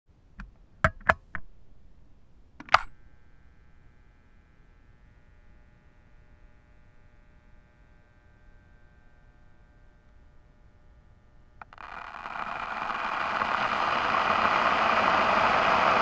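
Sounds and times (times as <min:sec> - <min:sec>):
faint electrical hum: 0:00.1 - 0:16.0
plastic clacks: 0:02.6 - 0:02.9, 0:11.6 - 0:14.5.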